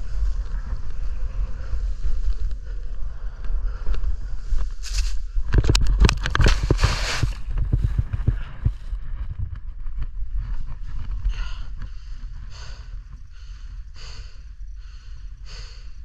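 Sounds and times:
hard breathing: 0.0 - 5.2, 10.9 - 16.0
low microphone rumble: 0.0 - 16.0
snow scraping against helmet camera: 4.8 - 5.3, 6.3 - 8.2.

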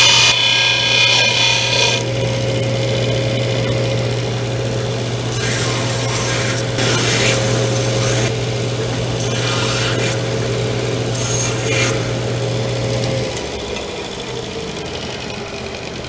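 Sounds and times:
disc sander running: 0.0 - 16.0
metal grinding on sanding disc: 3.6 - 13.5.

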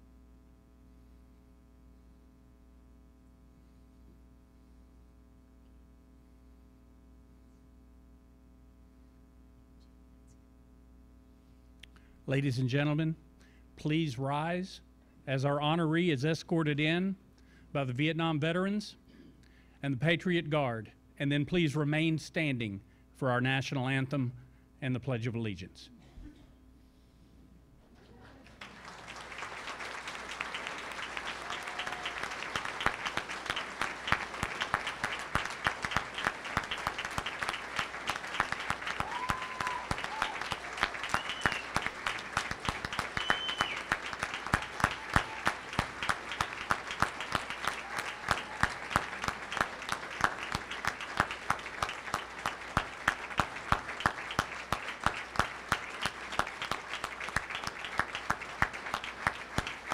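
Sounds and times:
crowd applauding: 28.2 - 59.9
whoops: 31.3 - 32.8, 38.9 - 41.9, 43.2 - 43.9, 44.5 - 45.7, 47.6 - 49.2.

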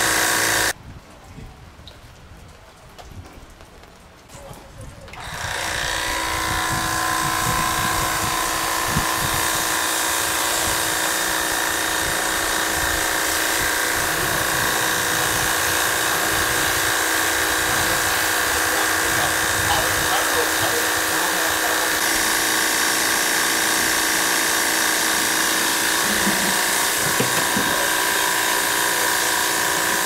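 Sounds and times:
pressure washer pump whine: 0.0 - 0.8, 5.2 - 30.0
water spray hissing: 10.1 - 30.0.

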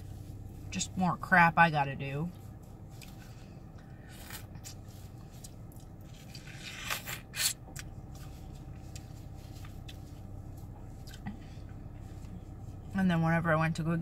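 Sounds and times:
steady low hum: 0.0 - 14.0
chewing watermelon: 4.2 - 11.4.

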